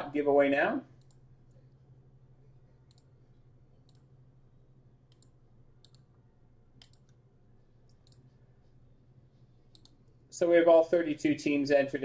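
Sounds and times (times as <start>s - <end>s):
low steady hum: 0.0s - 12.0s
computer mouse clicks: 1.0s - 1.2s, 2.8s - 3.1s, 3.8s - 4.1s, 5.0s - 6.2s, 6.8s - 7.2s, 7.8s - 8.4s, 9.7s - 10.2s.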